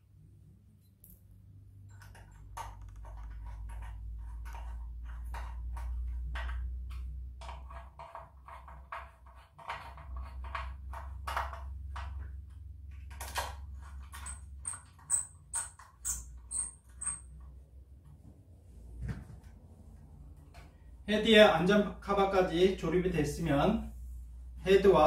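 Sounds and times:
plastic clicks and scrapes: 1.9s - 17.2s.

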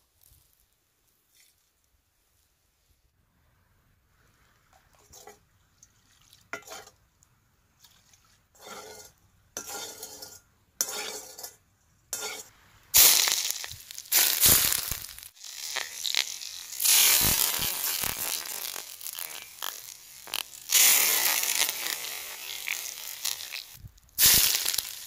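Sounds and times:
utensils scraping cookware: 8.6s - 12.5s
hot oil sizzling: 12.1s - 25.0s.

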